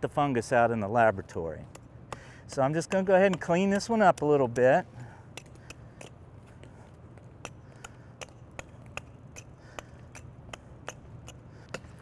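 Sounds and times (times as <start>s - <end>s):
hand axe chopping wood: 1.7s - 4.7s.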